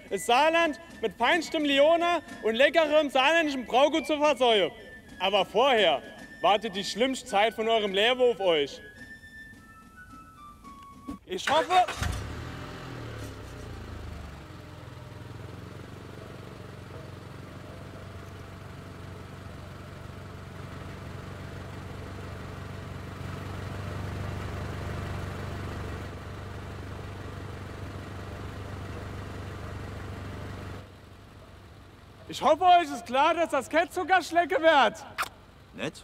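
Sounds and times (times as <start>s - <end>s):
engine running at low revs: 11.9s - 32.3s.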